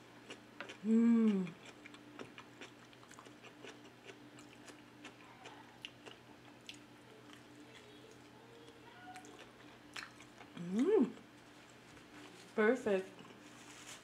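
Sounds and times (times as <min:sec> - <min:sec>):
close-miked chewing: 0:00.2 - 0:12.3
person humming: 0:00.8 - 0:01.6, 0:10.6 - 0:11.2.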